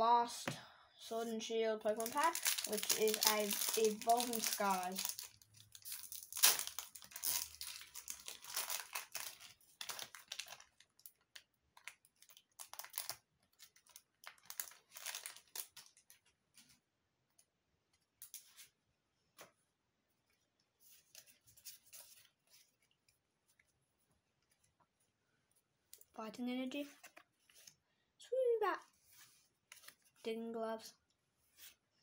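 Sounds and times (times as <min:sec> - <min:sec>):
cards rustling: 0:01.8 - 0:16.8, 0:29.0 - 0:30.2
foil wrapper tearing and crinkling: 0:01.9 - 0:16.2.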